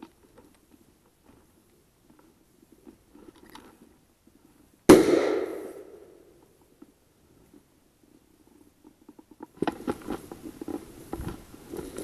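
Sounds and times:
shotgun shot: 0:04.9 - 0:06.1.

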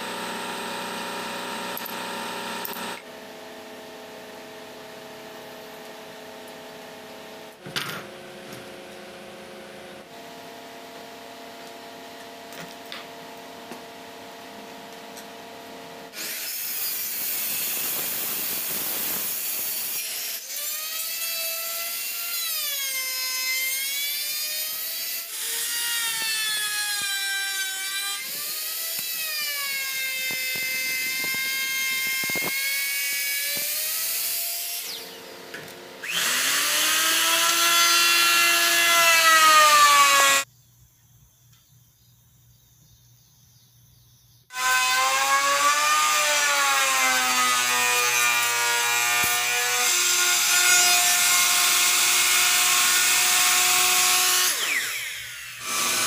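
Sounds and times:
circular saw cutting wood: 0:16.1 - 0:35.4, 0:36.0 - 0:40.5, 0:44.5 - 0:56.0
router motor whine: 0:23.8 - 0:40.5, 0:44.5 - 0:56.0.

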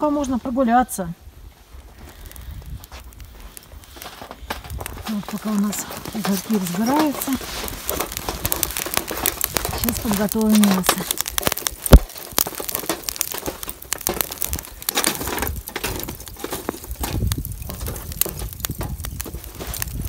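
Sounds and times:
charcoal crackling: 0:00.0 - 0:20.0
sharp pop: 0:11.6 - 0:12.2.

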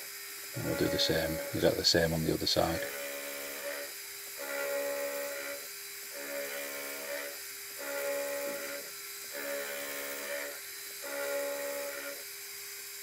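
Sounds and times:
milling machine motor whine: 0:00.0 - 0:13.0
end mill scraping hiss: 0:00.6 - 0:03.9.

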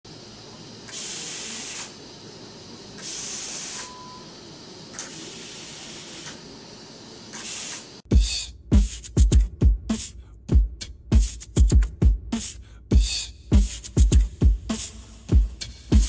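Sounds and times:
fuel injector spray hiss: 0:00.8 - 0:04.2, 0:05.0 - 0:08.1, 0:12.4 - 0:16.0
music with a heavy beat: 0:08.1 - 0:16.0.

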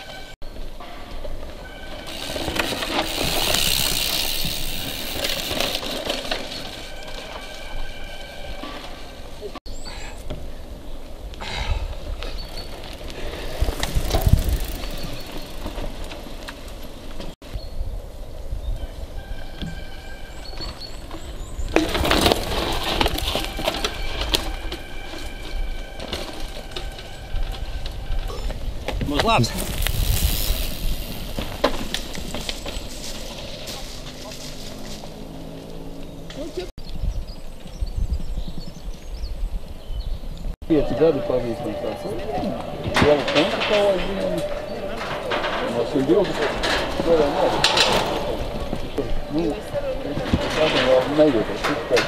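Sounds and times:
bike tyres on dirt: 0:00.0 - 0:52.0
bike chain clinking: 0:01.6 - 0:09.4, 0:12.3 - 0:17.4, 0:21.7 - 0:34.9
low wind rumble: 0:07.7 - 0:33.6, 0:35.1 - 0:52.0.

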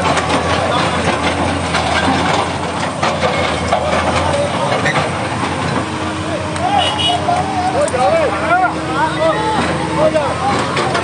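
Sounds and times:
excavator knocks and rattles: 0:00.0 - 0:06.6, 0:09.6 - 0:11.0
excavator diesel engine hum: 0:00.0 - 0:11.0.

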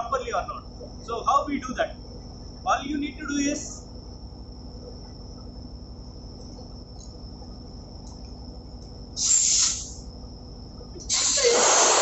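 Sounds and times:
compressed air hissing: 0:09.2 - 0:10.1, 0:11.1 - 0:12.0.

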